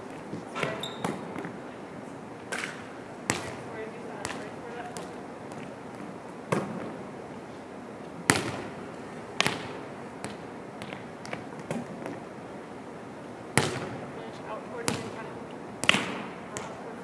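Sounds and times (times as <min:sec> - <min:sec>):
balls bouncing on gym floor: 0:00.0 - 0:01.7, 0:02.5 - 0:07.0, 0:08.2 - 0:12.4, 0:13.5 - 0:17.0
volleyballs smacking off hands: 0:02.5 - 0:03.6, 0:09.4 - 0:12.2, 0:15.8 - 0:16.8.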